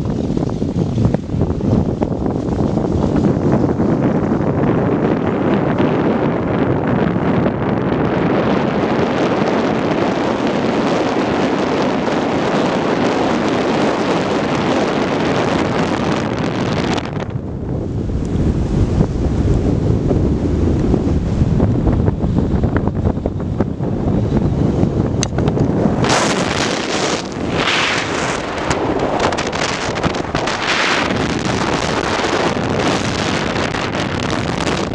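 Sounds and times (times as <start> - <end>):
wind rushing over microphone: 0.0 - 34.9
car road noise: 14.0 - 34.9.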